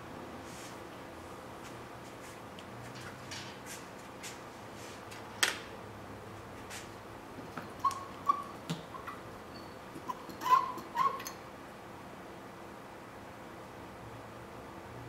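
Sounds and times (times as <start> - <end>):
seam roller squeaks: 7.7 - 11.4.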